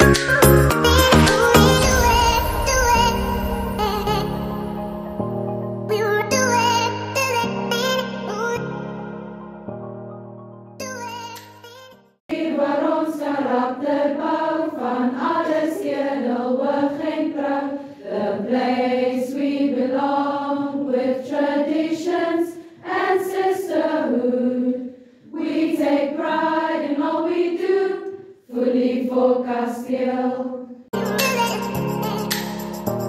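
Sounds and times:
background music: 0:00.0 - 0:12.1, 0:31.0 - 0:33.0
women singing unaccompanied: 0:12.3 - 0:30.8.

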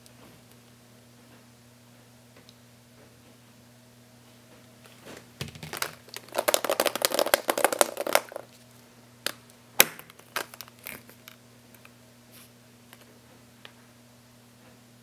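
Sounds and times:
plastic egg snapping open: 0:05.4 - 0:08.5, 0:09.2 - 0:11.9
plastic toy eggs clattering: 0:05.4 - 0:08.5.

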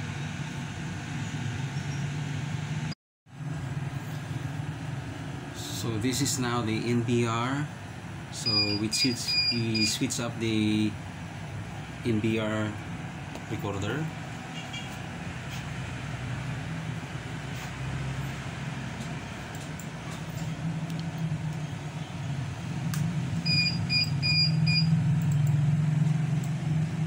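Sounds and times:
short high beeps: 0:08.4 - 0:10.0, 0:23.5 - 0:25.0.

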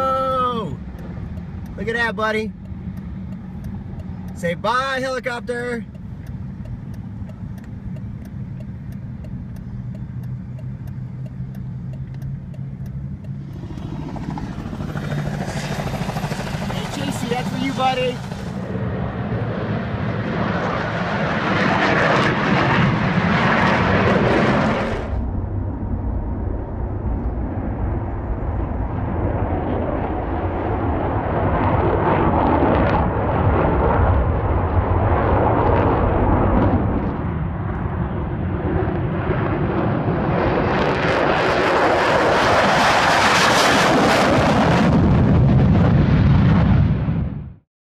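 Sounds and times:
jet engine roar: 0:12.9 - 0:47.6.

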